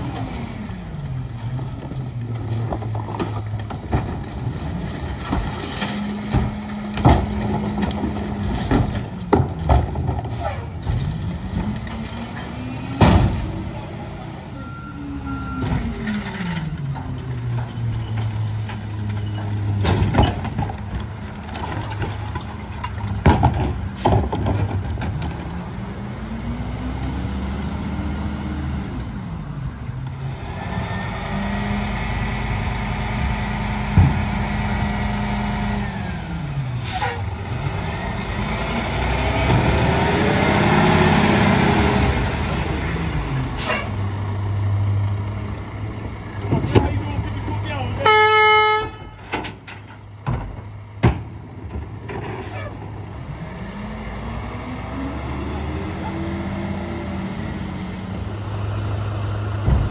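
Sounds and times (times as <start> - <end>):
bins banging against hopper: 2.4 - 13.8, 15.6 - 25.5, 46.3 - 48.0, 59.6 - 59.9
garbage truck diesel engine revving: 23.7 - 48.0, 51.4 - 59.9.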